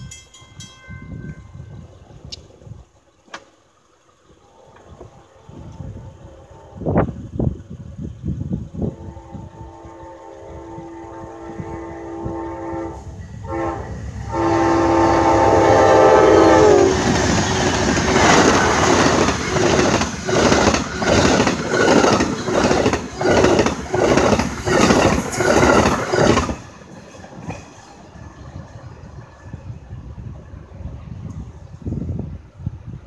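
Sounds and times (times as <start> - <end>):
train air horn blasts: 4.9 - 7.4, 8.7 - 17.4
train wheels clattering: 16.7 - 29.8.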